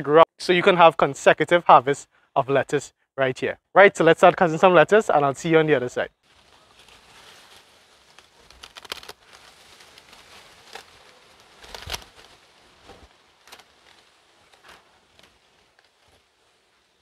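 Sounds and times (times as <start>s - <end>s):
lettuce leaves crackling: 6.2s - 17.0s.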